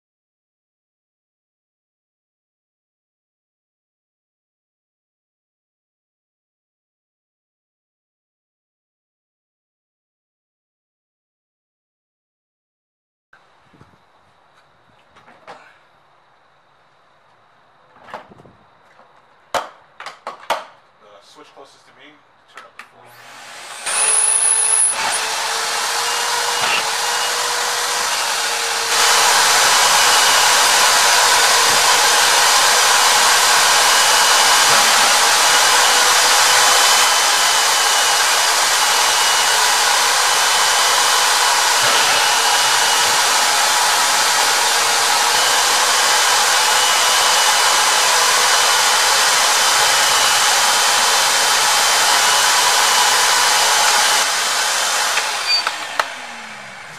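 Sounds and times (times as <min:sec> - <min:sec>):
shop vacuum motor running: 0:23.0 - 0:56.9.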